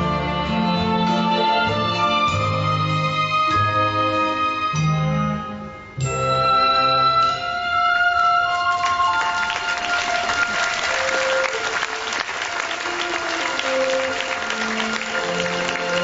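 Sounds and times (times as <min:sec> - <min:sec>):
instrumental background music: 0:00.0 - 0:10.2, 0:12.5 - 0:16.0
audience applauding: 0:08.2 - 0:16.0.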